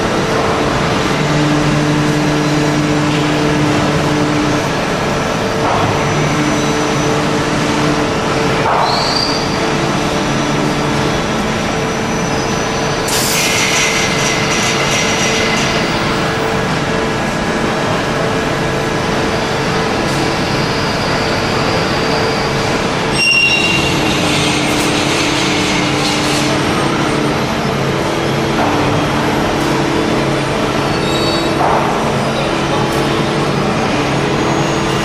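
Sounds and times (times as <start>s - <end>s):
conveyors whirring and rumbling: 0.0s - 35.0s.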